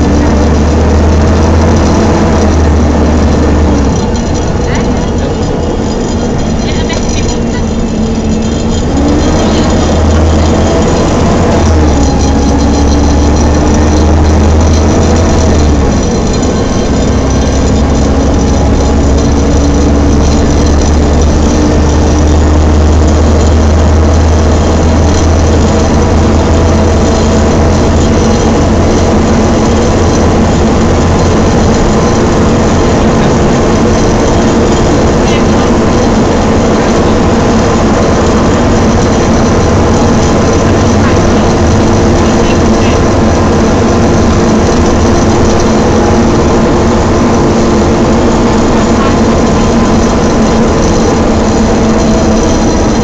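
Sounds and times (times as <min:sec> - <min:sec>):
diesel bus engine droning: 0:00.0 - 0:53.0
gearbox whine: 0:00.0 - 0:53.0.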